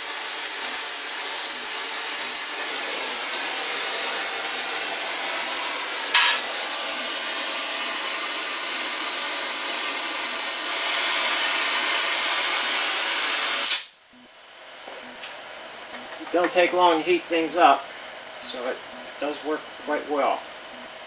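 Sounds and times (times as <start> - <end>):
torch flame hissing: 0.0 - 14.9.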